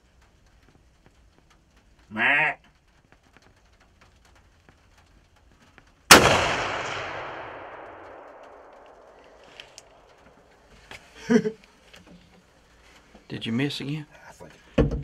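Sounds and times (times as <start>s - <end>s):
gunshot with echo: 6.1s - 9.1s.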